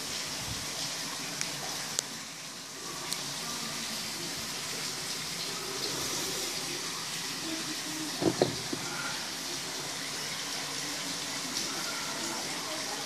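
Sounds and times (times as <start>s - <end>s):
water running into tub: 0.0s - 13.0s.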